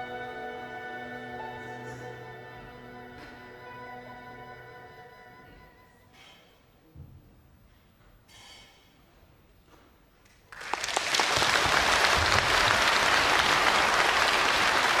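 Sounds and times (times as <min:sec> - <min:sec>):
audience applauding: 0:10.5 - 0:15.0.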